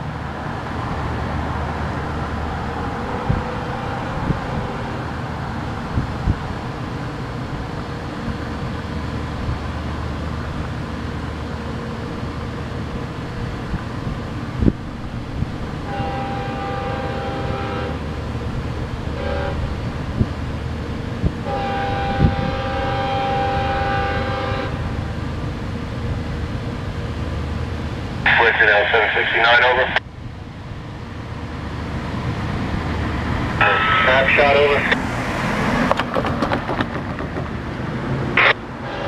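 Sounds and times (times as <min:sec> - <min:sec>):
distant train horn: 0:02.9 - 0:05.0, 0:15.8 - 0:18.2, 0:19.1 - 0:19.8, 0:21.4 - 0:25.0, 0:33.6 - 0:34.9, 0:38.4 - 0:39.0.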